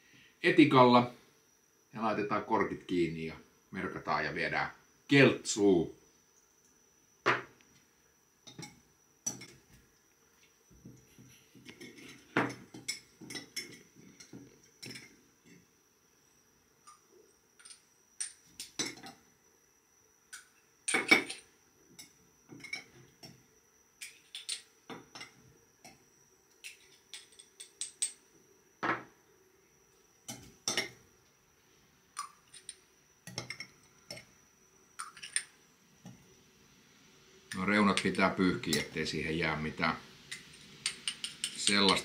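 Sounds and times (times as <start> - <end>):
metal utensil clinking on glass jars: 40.3 - 42.0.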